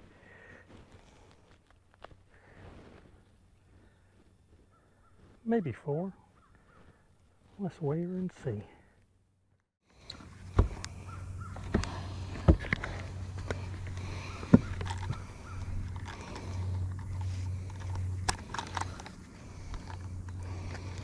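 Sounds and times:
low steady hum: 0:08.4 - 0:21.0
knocks and handling clatter: 0:10.1 - 0:21.0.

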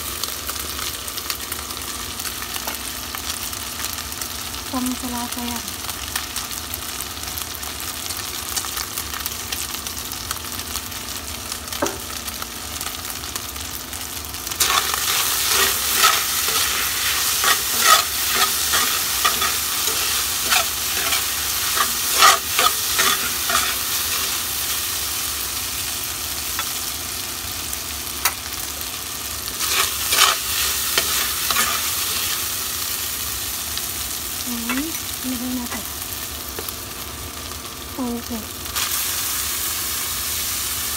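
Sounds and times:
meat sizzling in a frying pan: 0:00.0 - 0:40.9
spatula scraping a pan: 0:14.6 - 0:24.4, 0:29.6 - 0:32.4.

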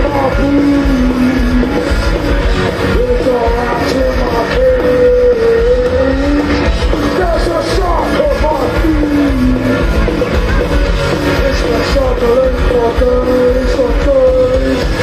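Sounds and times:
punk rock band playing live: 0:00.0 - 0:15.0.

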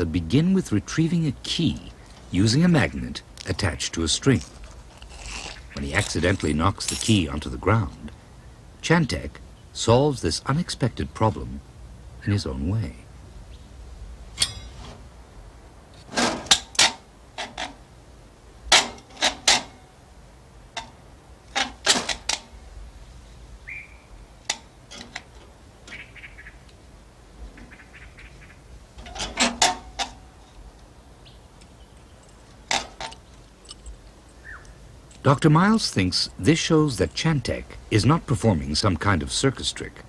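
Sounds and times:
hard objects clicking and knocking: 0:18.7 - 0:19.9, 0:20.8 - 0:22.5, 0:24.4 - 0:26.0, 0:29.0 - 0:30.6, 0:31.6 - 0:34.1.

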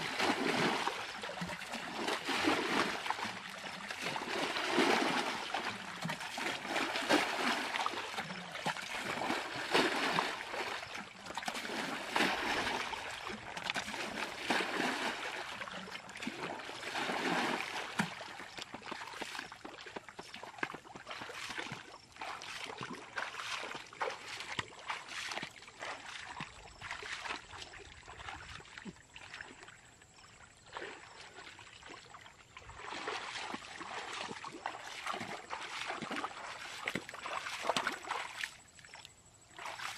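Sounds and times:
water thrown from bucket: 0:00.0 - 0:19.4
feet wading through mud: 0:00.0 - 0:39.9.

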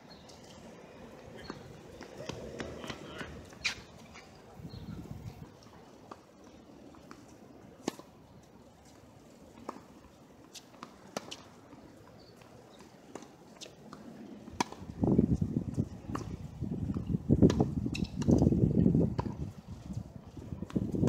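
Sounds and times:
tennis ball bouncing on hard court: 0:01.4 - 0:04.0, 0:10.5 - 0:11.5, 0:12.8 - 0:15.0, 0:15.8 - 0:18.4, 0:19.1 - 0:19.4.

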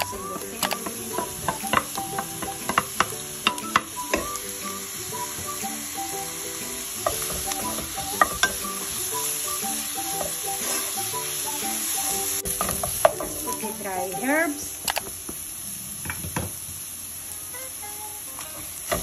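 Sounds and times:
utensils knocking against pan: 0:00.0 - 0:04.4, 0:07.0 - 0:08.9, 0:12.4 - 0:13.6
wooden spoon stirring: 0:00.0 - 0:04.5, 0:10.1 - 0:11.4
vegetables sizzling in oil: 0:00.0 - 0:19.0.

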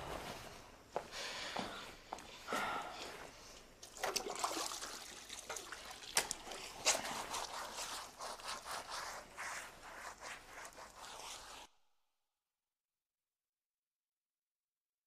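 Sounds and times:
water splashing and trickling: 0:03.8 - 0:07.8.

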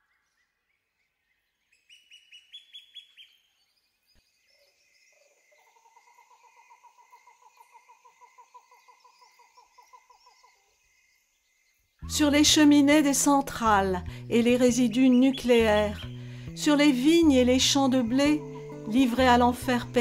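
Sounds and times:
bird rapid trill: 0:14.7 - 0:20.0.

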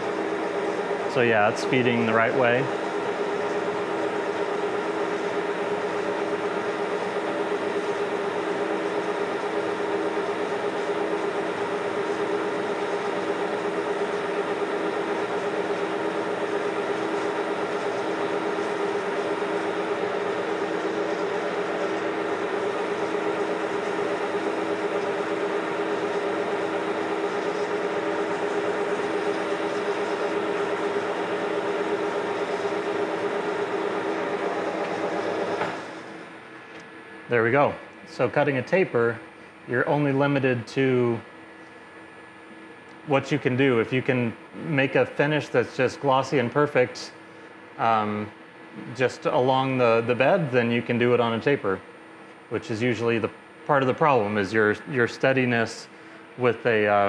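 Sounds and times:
lathe running: 0:00.0 - 0:43.0.

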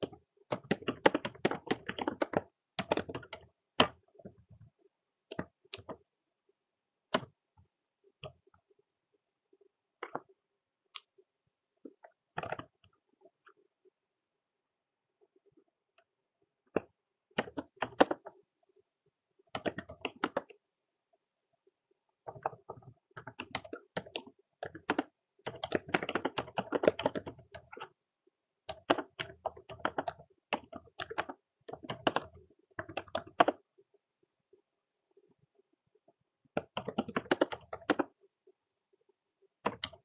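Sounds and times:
typing on computer keyboard: 0:00.0 - 0:04.4, 0:05.3 - 0:06.0, 0:11.9 - 0:13.5, 0:16.7 - 0:18.4, 0:19.5 - 0:20.6, 0:22.2 - 0:28.0, 0:28.6 - 0:33.7, 0:36.5 - 0:38.2, 0:39.5 - 0:40.0.

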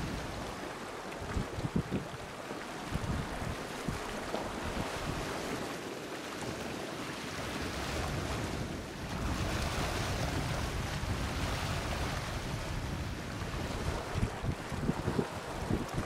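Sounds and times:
choppy water washing: 0:00.0 - 0:16.0
wind gusting on microphone: 0:01.2 - 0:02.2, 0:02.9 - 0:05.7, 0:07.5 - 0:16.0.

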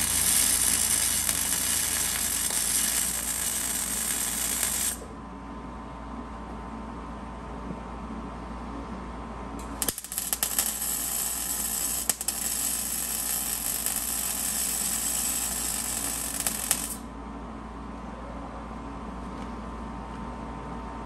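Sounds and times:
welder arc crackling: 0:00.0 - 0:05.0, 0:09.6 - 0:17.1.

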